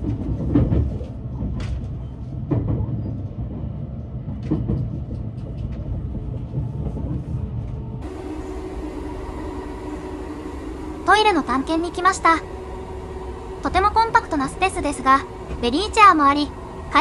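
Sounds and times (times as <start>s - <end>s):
train cabin rumble: 0.0s - 17.0s.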